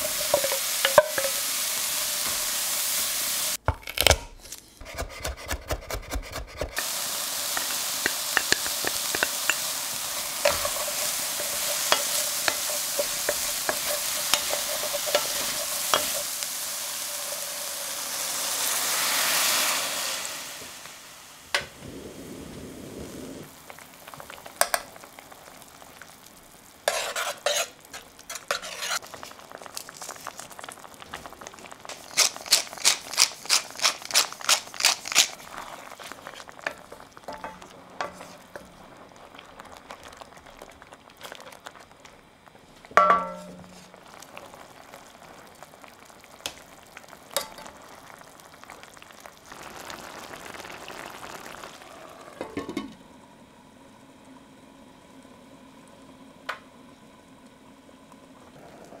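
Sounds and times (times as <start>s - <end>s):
spoon tapping and scraping: 0.0s - 1.4s, 7.5s - 16.3s, 26.9s - 29.0s, 43.0s - 43.8s
wooden spoon stirring: 0.0s - 1.4s, 7.5s - 16.4s, 26.9s - 30.6s, 31.9s - 39.0s
sauce simmering in pan: 6.7s - 59.0s.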